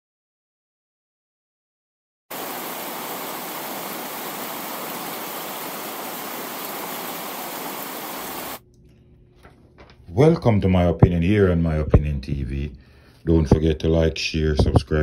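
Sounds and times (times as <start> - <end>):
steady static hiss: 2.3 - 8.6.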